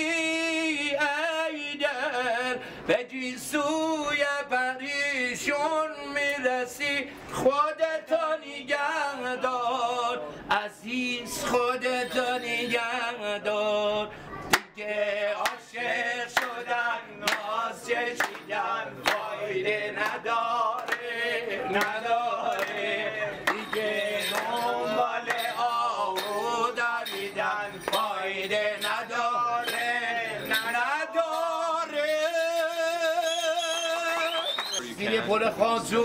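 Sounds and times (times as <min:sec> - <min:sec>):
man singing unaccompanied: 0:00.0 - 0:36.0.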